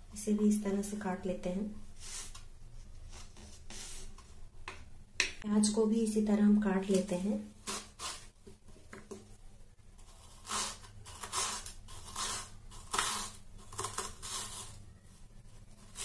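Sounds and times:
knife slicing onion on wood: 0:10.3 - 0:14.5.

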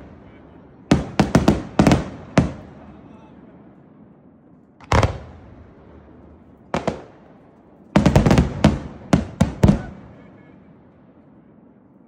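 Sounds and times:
firework crackles: 0:00.0 - 0:12.0
firework shells bursting with bangs: 0:04.8 - 0:10.1.

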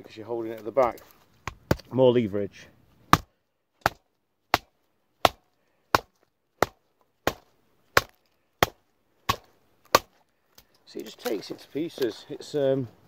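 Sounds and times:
knife chopping into stick: 0:03.1 - 0:10.2.

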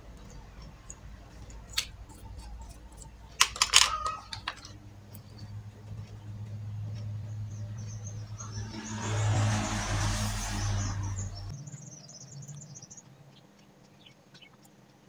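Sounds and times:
low hum: 0:00.0 - 0:12.9
small hard objects clattering: 0:01.7 - 0:04.8.

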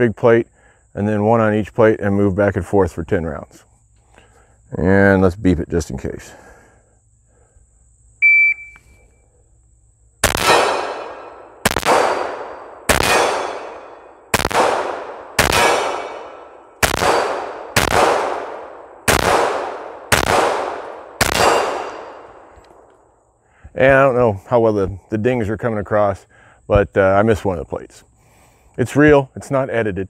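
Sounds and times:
shot timer beep: 0:08.2 - 0:08.8
pistol shots: 0:10.2 - 0:22.5.

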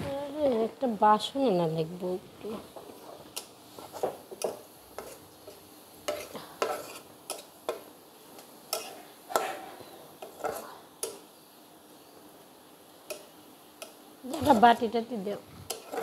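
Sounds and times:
onions sizzling in oil: 0:00.0 - 0:16.0
metal spatula scraping a wok: 0:02.8 - 0:07.8, 0:08.7 - 0:11.2, 0:15.6 - 0:16.0.

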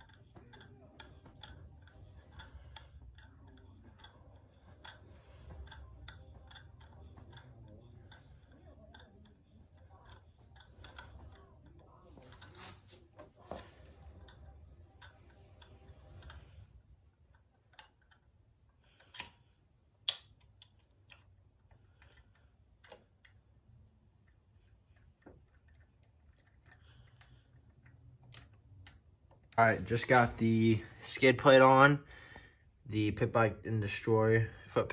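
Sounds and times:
hand tools clicking on metal: 0:00.0 - 0:16.6.

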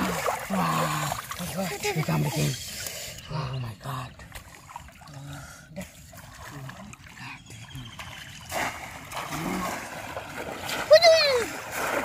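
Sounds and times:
water splashing and trickling: 0:00.0 - 0:12.0.

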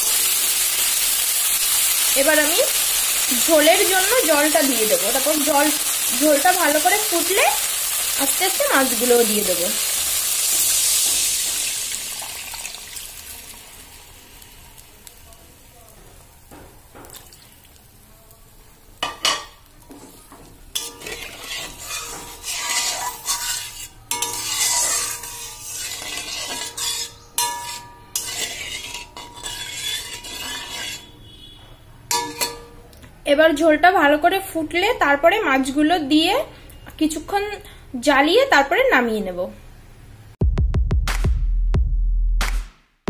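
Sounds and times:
water sizzling in hot oil: 0:00.0 - 0:31.1
metal spatula scraping pan: 0:20.0 - 0:32.8.

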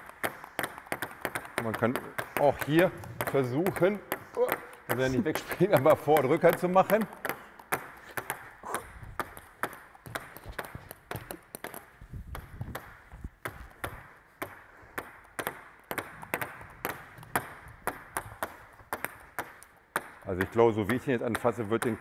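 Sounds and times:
table tennis ball clicking on bat: 0:00.0 - 0:08.4, 0:09.2 - 0:14.6.

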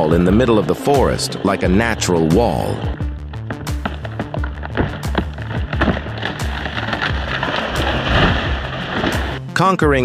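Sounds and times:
background music with low held notes: 0:00.0 - 0:10.0
tree crashing through branches: 0:03.5 - 0:09.4.

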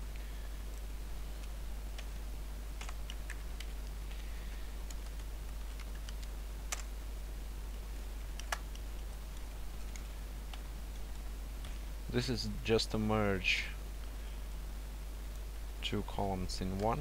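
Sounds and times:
low electrical hum: 0:00.0 - 0:17.0
computer keyboard keys clicking: 0:02.8 - 0:03.8, 0:04.9 - 0:06.9, 0:08.4 - 0:11.2.

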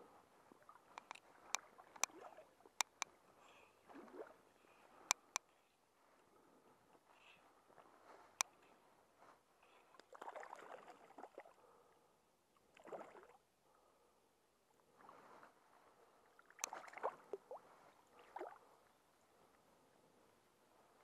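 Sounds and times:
fish splashing in water: 0:16.6 - 0:17.2.

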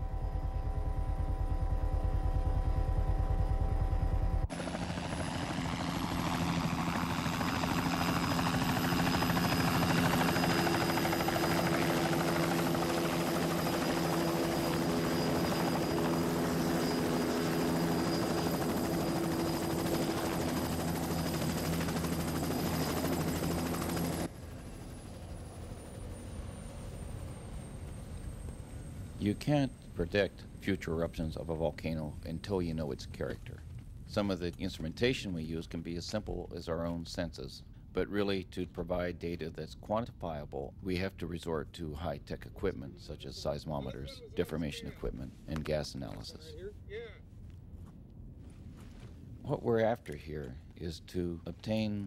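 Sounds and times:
helicopter turbine whine: 0:00.0 - 0:52.0
helicopter rotor thumping: 0:00.1 - 0:29.2.

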